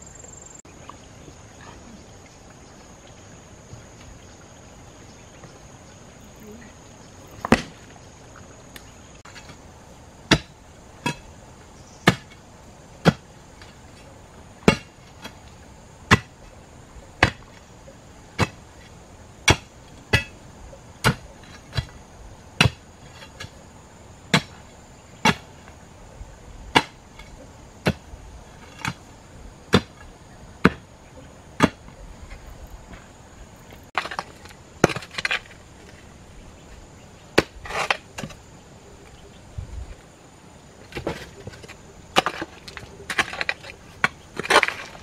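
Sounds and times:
hoe striking stony soil: 10.3s - 11.2s, 12.0s - 12.4s, 14.6s - 15.4s, 17.2s - 17.5s, 18.4s - 18.6s, 19.4s - 20.4s, 21.0s - 22.0s, 22.6s - 23.6s, 24.3s - 24.6s, 25.2s - 25.5s, 26.7s - 29.0s, 29.7s - 30.8s, 31.6s - 31.9s, 34.0s - 36.0s, 37.4s - 38.4s, 40.8s - 45.0s
hoe scraping soil: 37.4s - 38.4s, 40.8s - 45.0s.

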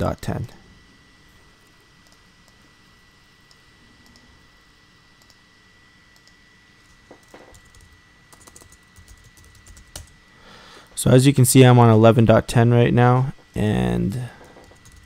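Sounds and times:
faint keyboard typing: 2.0s - 2.6s, 5.2s - 5.4s, 6.1s - 10.2s, 14.4s - 15.0s.

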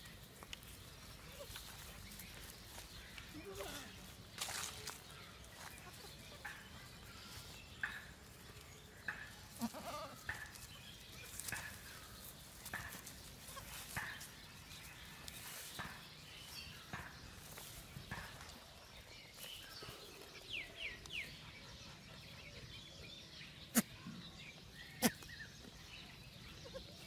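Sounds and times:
goats bleating: 3.3s - 4.1s, 9.5s - 10.3s.

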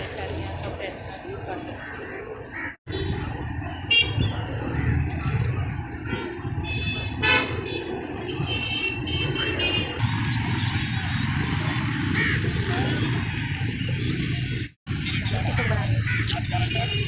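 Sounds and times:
road traffic rumble: 0.0s - 17.0s
vehicle horns: 2.9s - 4.5s, 6.6s - 10.0s, 16.6s - 17.0s.

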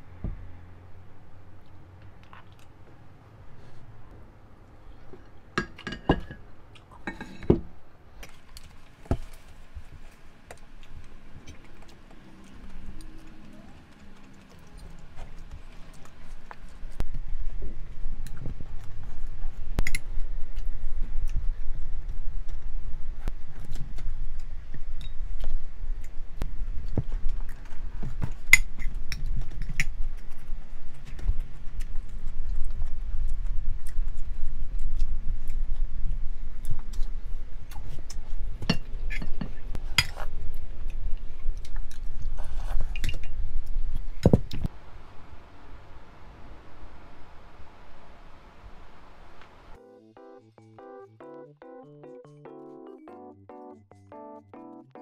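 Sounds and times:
utensils clinking on dishes: 7.0s - 7.6s.

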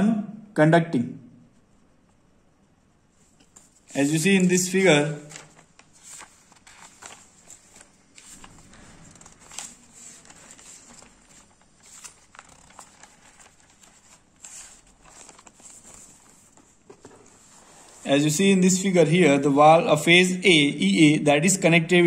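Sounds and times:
page turns: 3.2s - 4.6s, 5.2s - 18.1s
notebook pages rustling: 3.2s - 18.3s.

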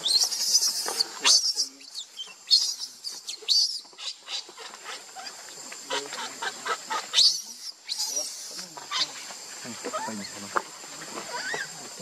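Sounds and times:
baby monkey screaming: 0.0s - 4.6s, 6.1s - 9.1s, 11.3s - 11.7s.

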